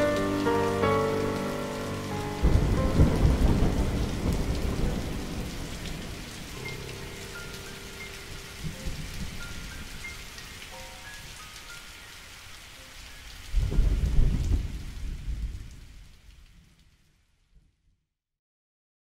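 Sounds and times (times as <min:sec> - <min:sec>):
thunder rumbling: 0:00.0 - 0:10.1, 0:13.5 - 0:16.0
steady rain: 0:00.0 - 0:17.5.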